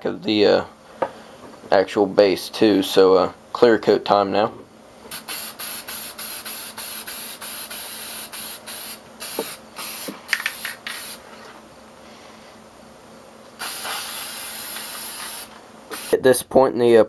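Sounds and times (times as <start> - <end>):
aerosol can spraying: 5.1 - 11.2, 13.6 - 16.2.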